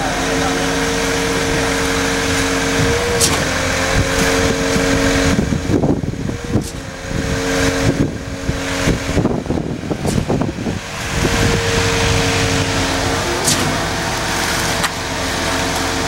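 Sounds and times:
concrete pump engine hum: 0:00.0 - 0:16.0.

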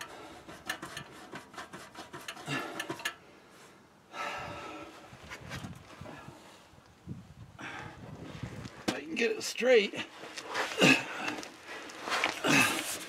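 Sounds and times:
exhaust pipe scraping in clamps: 0:00.0 - 0:03.2.

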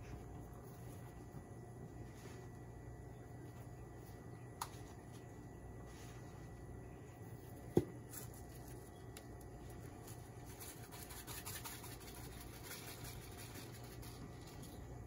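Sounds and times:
low steady hum: 0:00.0 - 0:15.0
seasoning shaken from container: 0:10.4 - 0:14.8.

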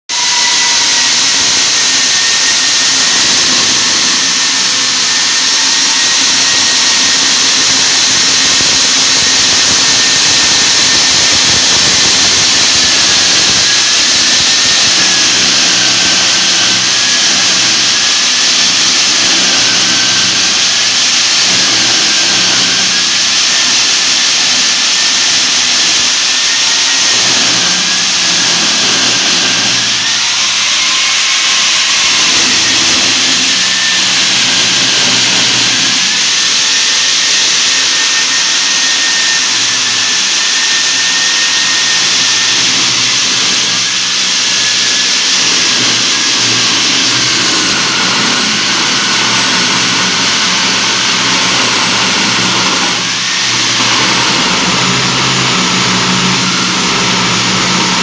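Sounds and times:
drill bit grinding concrete: 0:00.1 - 0:58.0
core drill motor whining: 0:00.2 - 0:58.0.

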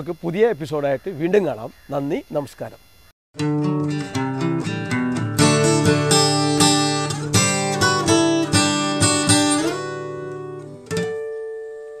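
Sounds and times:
strummed guitar chords: 0:03.4 - 0:12.0.

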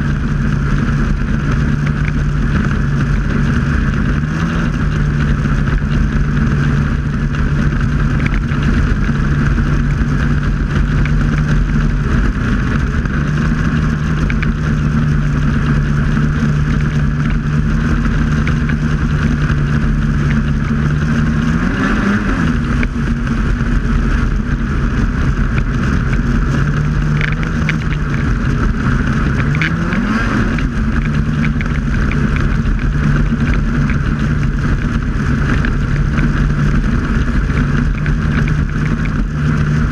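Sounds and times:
snowmobile engine running: 0:00.0 - 0:39.9
track and wind noise: 0:00.0 - 0:39.9.

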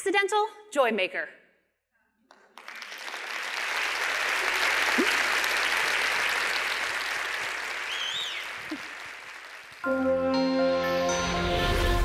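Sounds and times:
audience applauding: 0:02.3 - 0:10.0
short whistle: 0:07.9 - 0:08.5.

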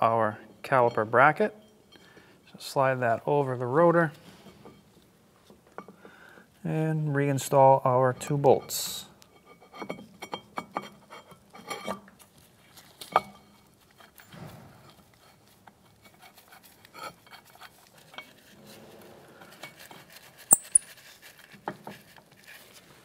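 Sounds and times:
metal clinks and scrapes: 0:04.2 - 0:05.0, 0:08.2 - 0:22.8
sharp metallic click: 0:20.5 - 0:20.9.

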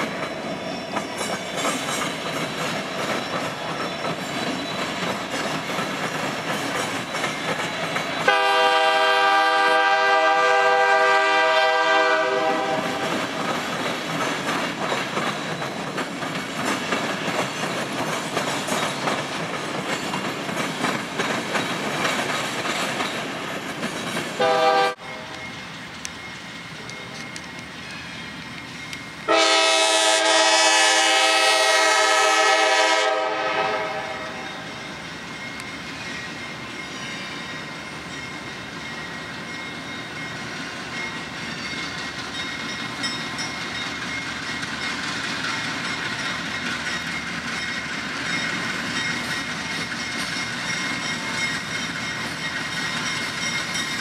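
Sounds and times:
freight train wheels clattering: 0:00.0 - 0:32.6, 0:33.3 - 0:54.0
locomotive air horn blast: 0:08.3 - 0:13.0, 0:24.4 - 0:25.2, 0:29.3 - 0:34.4
train horn toot: 0:08.3 - 0:13.1, 0:24.4 - 0:25.4, 0:29.3 - 0:34.7.

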